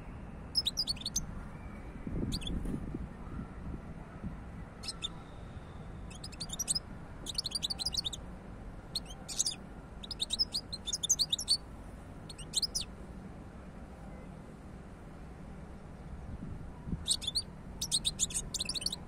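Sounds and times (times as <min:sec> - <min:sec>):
goldfinch twittering song: 0:00.6 - 0:01.2, 0:02.2 - 0:02.6, 0:04.8 - 0:05.3, 0:06.1 - 0:08.2, 0:08.9 - 0:11.6, 0:12.3 - 0:12.9, 0:17.1 - 0:19.0.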